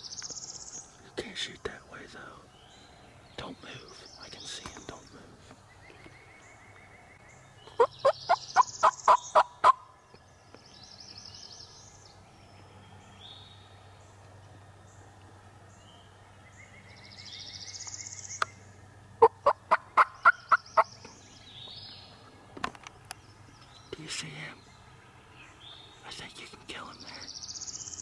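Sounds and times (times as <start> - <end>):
small birds chirping: 0.0 - 28.0
turkey gobbling: 7.8 - 9.8, 19.2 - 20.8.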